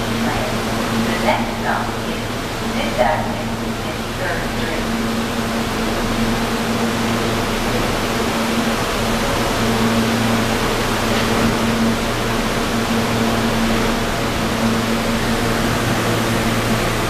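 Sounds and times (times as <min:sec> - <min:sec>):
fan noise: 0:00.0 - 0:17.0
subway car electrical hum: 0:00.0 - 0:17.0.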